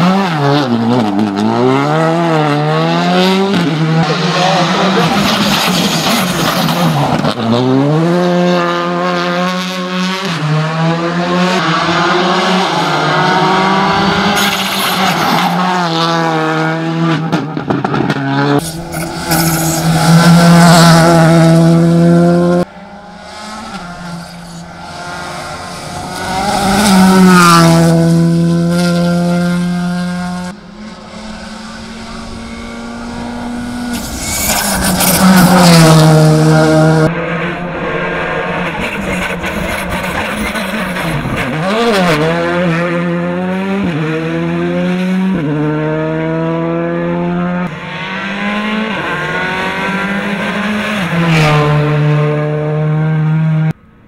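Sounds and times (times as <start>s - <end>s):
rally car engine at full throttle: 0.0s - 54.0s.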